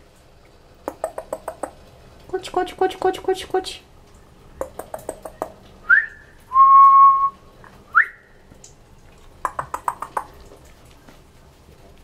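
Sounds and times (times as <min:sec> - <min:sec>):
tongue clicks: 0:00.8 - 0:01.8, 0:04.6 - 0:05.6, 0:09.4 - 0:10.5
person whistling: 0:05.8 - 0:08.3.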